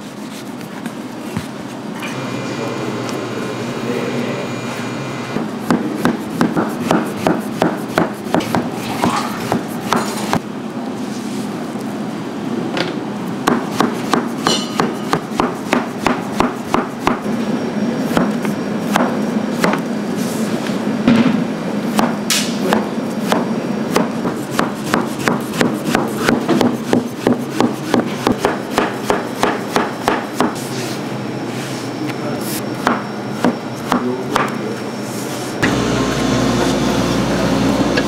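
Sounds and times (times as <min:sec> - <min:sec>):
steady low hum: 0:00.0 - 0:38.0
knife chopping on cutting board: 0:05.6 - 0:10.4, 0:13.5 - 0:17.2, 0:21.9 - 0:30.6.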